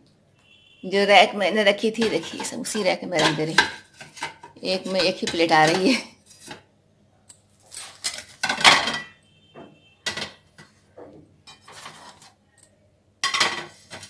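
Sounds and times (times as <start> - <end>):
plates clattering in dish rack: 8.4 - 9.2, 13.2 - 14.0.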